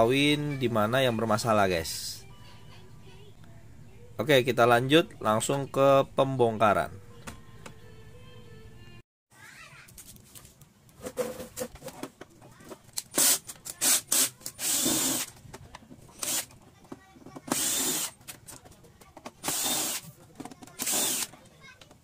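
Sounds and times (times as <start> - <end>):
cordless drill spinning: 13.2 - 15.3, 16.2 - 16.5, 17.5 - 18.2, 19.4 - 20.1, 20.8 - 21.3.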